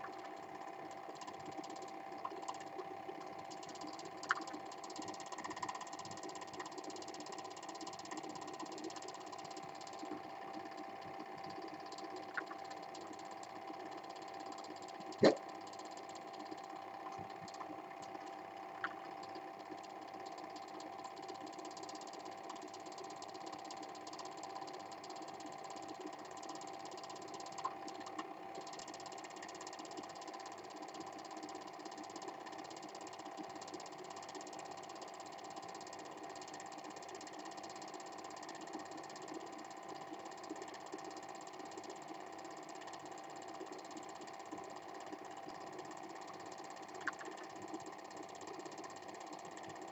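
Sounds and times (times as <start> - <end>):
faint clicks: 0.0 - 49.9
film projector running: 0.0 - 49.9.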